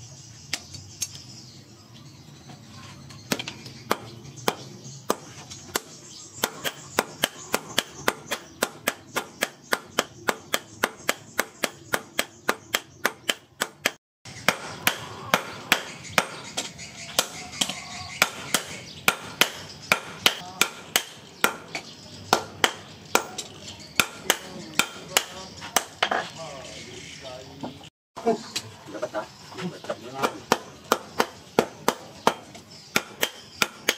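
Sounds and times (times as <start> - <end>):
hammers striking steel on anvil: 3.3 - 26.2, 30.2 - 33.9.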